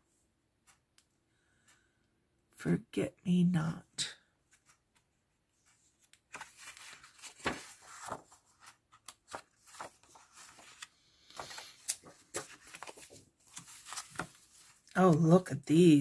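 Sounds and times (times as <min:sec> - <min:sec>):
paper rustling and flicking: 0:04.5 - 0:15.3.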